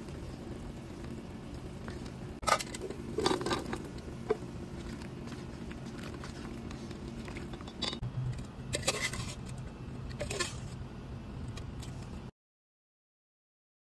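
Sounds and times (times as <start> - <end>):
utensil scraping a pot: 1.9 - 8.0, 8.7 - 10.8.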